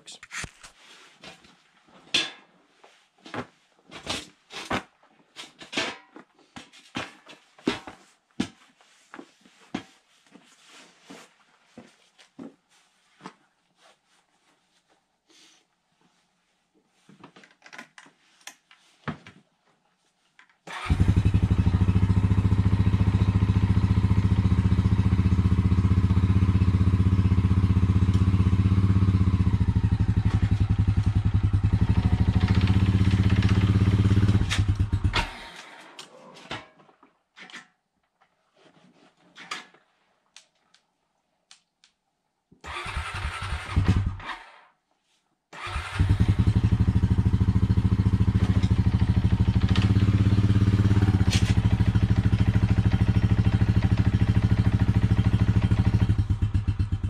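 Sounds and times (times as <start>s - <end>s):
atv engine running: 20.8s - 35.4s, 45.7s - 57.0s.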